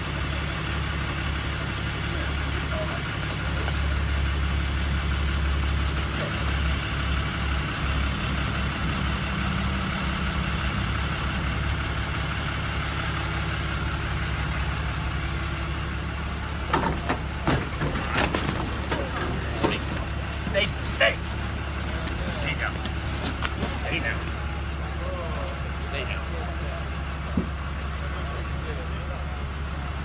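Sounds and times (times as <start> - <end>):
vehicle engine idling: 0.0 - 30.0
sharp knocks and bangs: 16.7 - 20.2.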